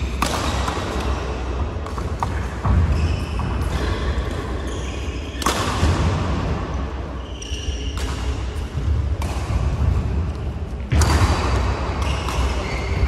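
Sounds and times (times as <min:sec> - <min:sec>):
racket hitting shuttlecock: 0:00.0 - 0:04.6, 0:05.3 - 0:06.7, 0:07.4 - 0:13.0
shoes squeaking on court: 0:01.9 - 0:05.6, 0:07.1 - 0:08.6, 0:12.0 - 0:13.0.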